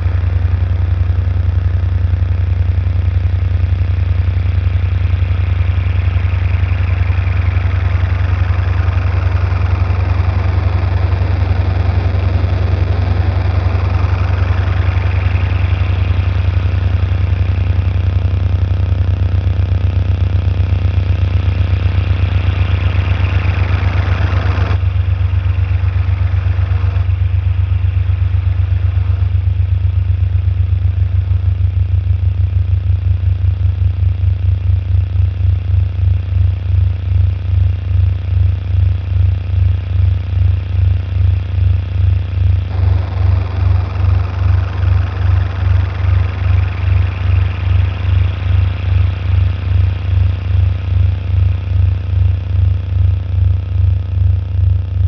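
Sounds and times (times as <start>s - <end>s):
low pulsing electronic drone: 0.0s - 55.0s
noisy pitch-sweeping swells: 5.4s - 18.1s, 21.8s - 29.4s, 42.7s - 50.4s.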